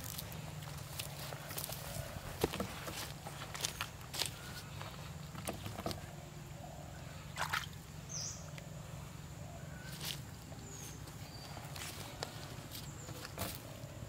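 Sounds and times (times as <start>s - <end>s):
steady low hum: 0.0s - 14.0s
splashes in shallow water and mud: 7.3s - 7.8s.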